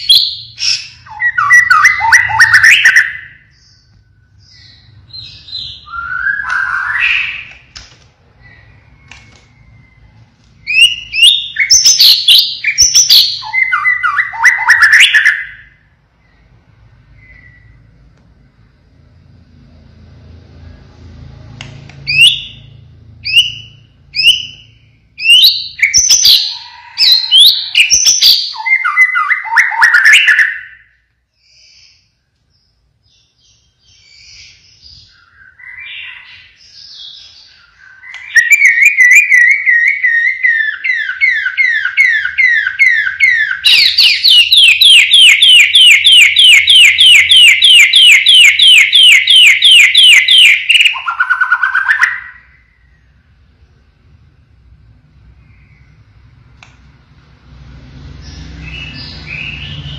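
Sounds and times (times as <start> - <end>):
songbird singing whistles: 0.0 - 7.7, 8.4 - 16.5, 17.1 - 17.9, 22.0 - 53.0.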